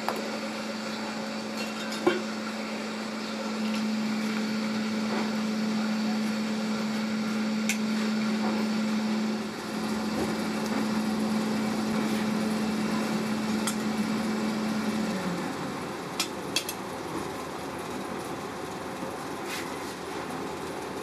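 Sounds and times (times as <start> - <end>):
electric air blower humming: 0.0 - 16.6.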